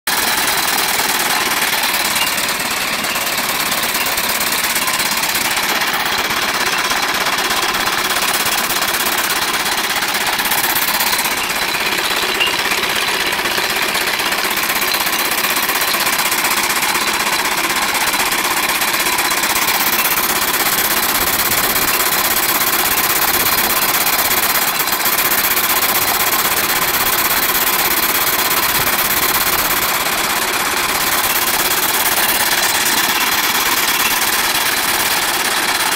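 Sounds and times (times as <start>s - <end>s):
clatter of the motion: 0.1s - 35.9s
steam engine exhaust chuffing: 0.1s - 35.9s.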